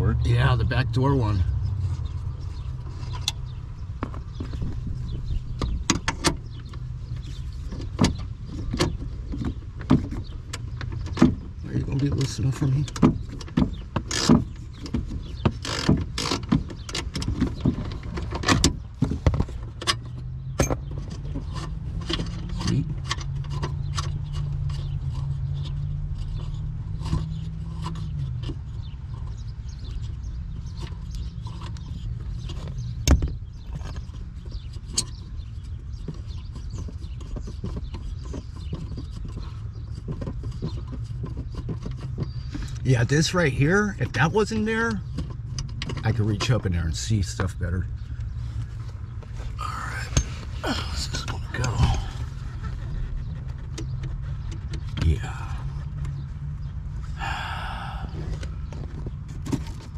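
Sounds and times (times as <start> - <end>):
steady low hum: 46.1 - 59.8.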